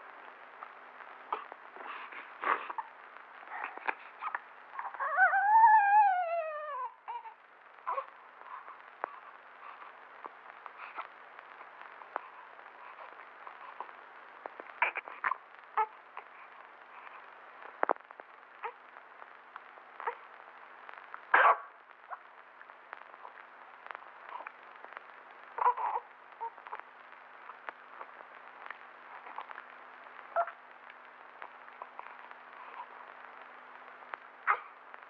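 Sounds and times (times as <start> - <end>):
old film crackle and hiss: 0.0 - 35.0
newborn baby crying: 1.3 - 2.9, 3.5 - 9.9, 14.8 - 16.3, 25.6 - 26.9, 34.4 - 34.8.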